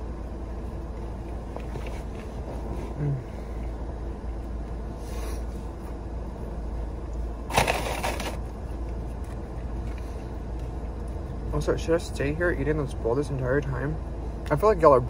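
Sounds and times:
low rumble inside a car: 0.0 - 15.0
scraping or rustling noise: 7.5 - 8.4.

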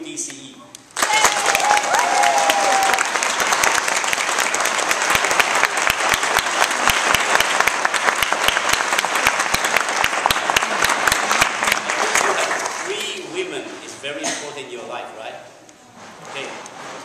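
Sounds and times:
crowd clapping: 0.9 - 13.2.

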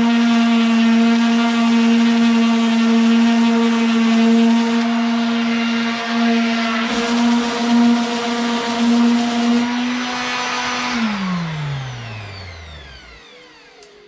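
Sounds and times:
orbital sander rasping: 0.0 - 14.0
sander motor winding down: 0.0 - 14.0.

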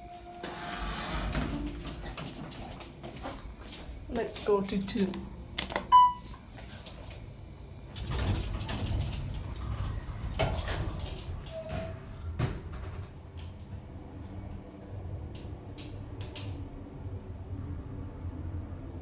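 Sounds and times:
elevator doors sliding shut: 0.0 - 2.8, 7.9 - 13.4.

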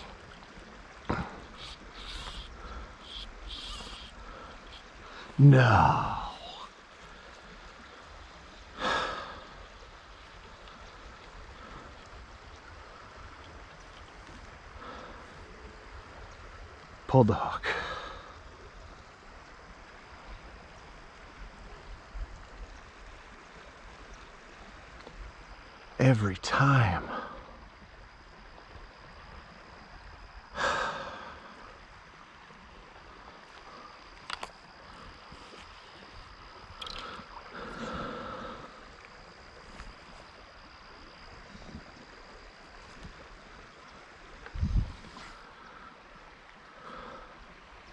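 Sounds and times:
river current running: 0.0 - 47.9
man sighing: 5.2 - 6.7.

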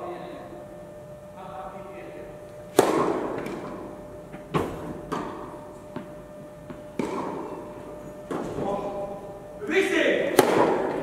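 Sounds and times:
faint steady hum: 0.0 - 11.0
tennis ball hits echoing: 2.7 - 8.8, 10.3 - 11.0.

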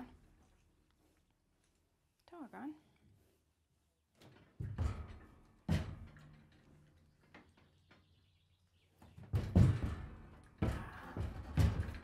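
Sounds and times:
horse hooves thudding in trailer: 9.0 - 12.0.

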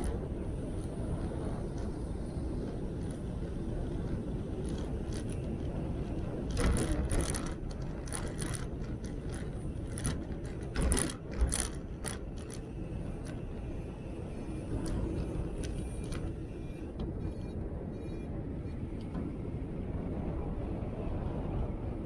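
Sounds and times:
sharp clicking rattles: 0.0 - 16.5
tyres rolling low rumble: 0.0 - 22.0.

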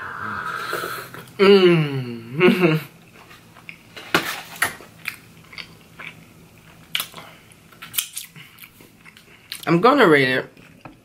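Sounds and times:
chewing with crunches: 5.0 - 9.7.

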